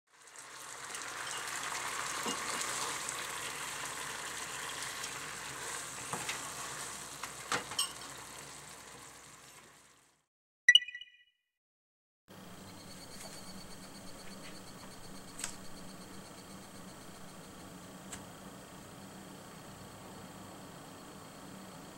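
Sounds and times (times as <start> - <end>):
tofu sizzling in a frying pan: 0.1 - 10.2.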